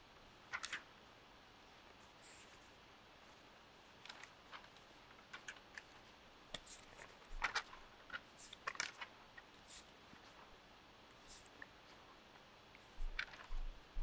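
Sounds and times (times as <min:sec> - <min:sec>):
paper rustling: 0:00.5 - 0:00.9, 0:02.0 - 0:10.5, 0:12.8 - 0:13.8.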